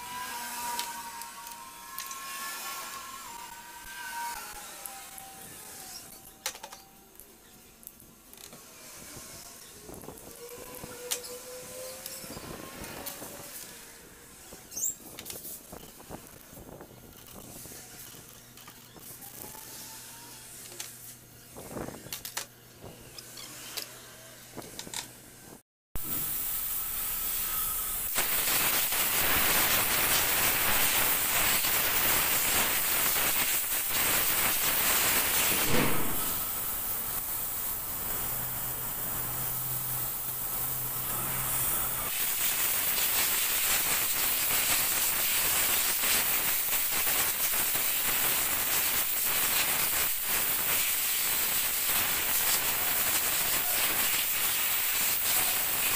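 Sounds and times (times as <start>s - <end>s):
spray gun hissing: 26.0s - 55.9s.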